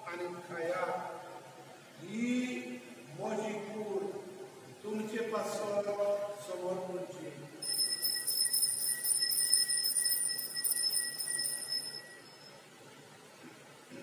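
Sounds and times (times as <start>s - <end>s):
altar bells jingling: 7.6s - 12.5s.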